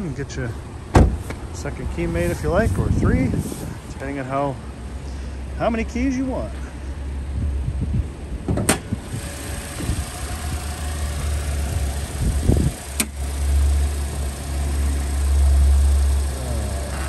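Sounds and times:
steady low rumble: 0.0s - 17.0s
car hood clicks: 0.9s - 1.4s, 8.4s - 9.0s.

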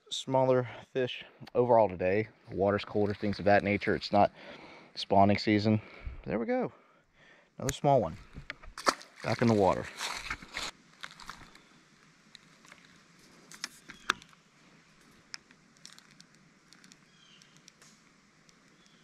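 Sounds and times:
fish splashing into water: 8.8s - 9.5s.

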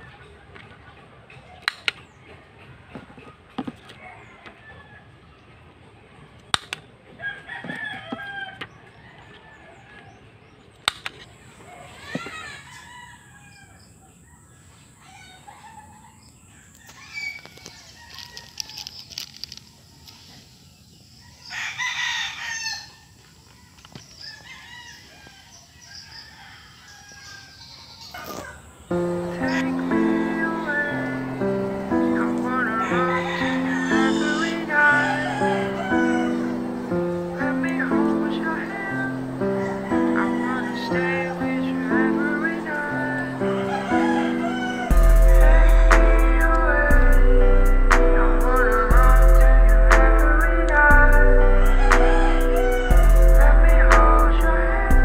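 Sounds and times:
rooster crowing: 7.2s - 10.2s, 11.7s - 13.9s, 15.0s - 18.9s, 21.4s - 23.1s, 24.2s - 55.0s.

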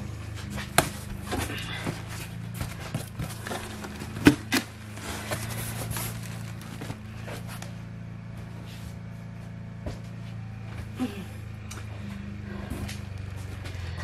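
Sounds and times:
steady low hum: 0.0s - 14.0s
cardboard rustling and scraping: 0.3s - 7.9s.

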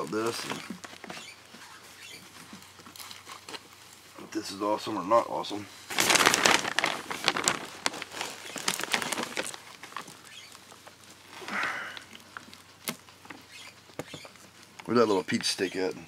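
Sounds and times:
soil crackling and rustling: 0.0s - 16.0s.

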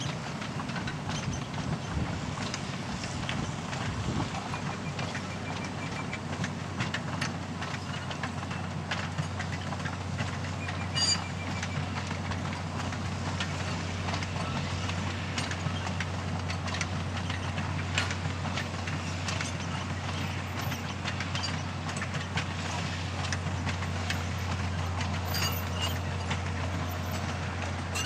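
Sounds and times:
train wagons rolling past: 0.0s - 28.0s
wheels clicking: 0.0s - 28.0s
metallic ring: 25.2s - 26.3s.

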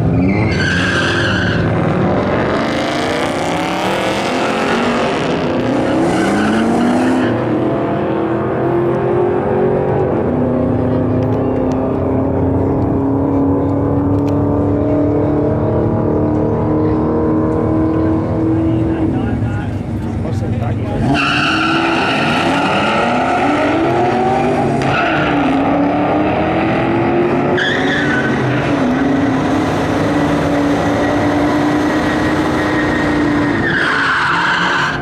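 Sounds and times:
tires squealing: 0.0s - 8.9s, 20.9s - 35.0s
car engines revving and idling: 0.0s - 35.0s.

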